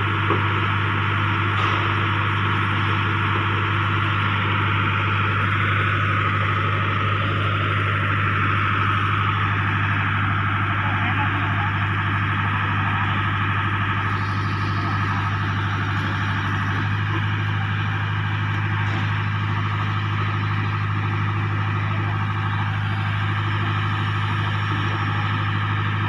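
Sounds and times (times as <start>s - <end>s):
diesel engine droning: 0.0s - 26.0s.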